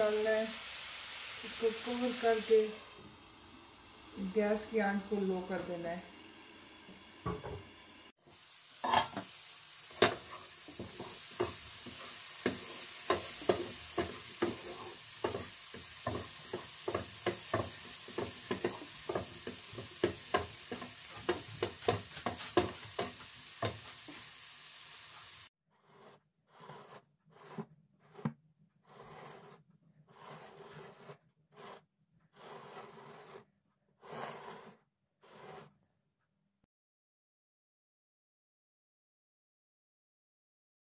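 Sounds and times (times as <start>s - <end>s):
mushrooms sizzling in a frying pan: 0.0s - 25.5s
wooden spatula scraping a pan: 8.8s - 31.8s, 32.4s - 35.8s.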